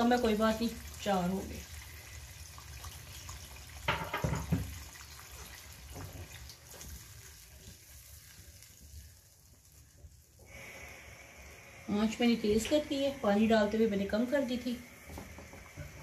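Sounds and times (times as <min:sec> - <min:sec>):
spatula stirring in a pan: 0:00.0 - 0:11.0.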